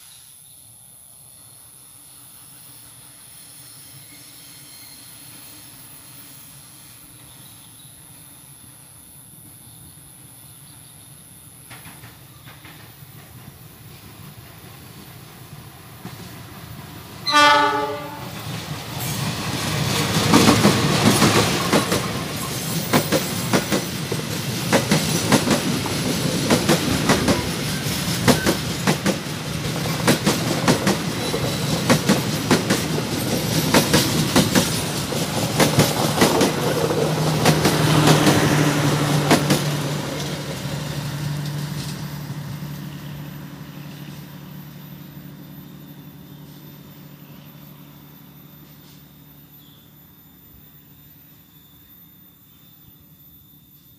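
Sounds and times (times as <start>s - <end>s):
train wheels clickety-clack: 11.6s - 42.6s
train horn blast: 17.2s - 18.5s.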